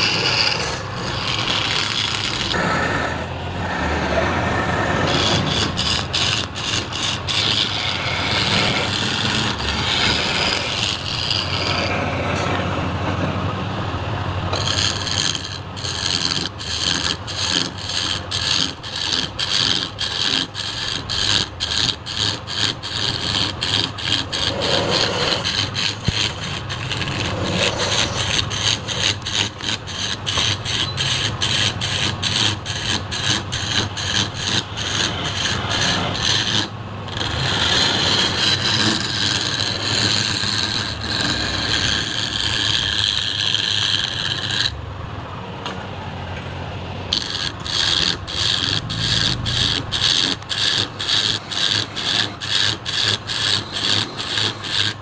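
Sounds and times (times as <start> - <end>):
chisel scraping wood on a lathe: 0.0 - 13.4, 14.4 - 44.8, 47.0 - 55.0
lathe humming: 0.0 - 45.4, 46.8 - 55.0.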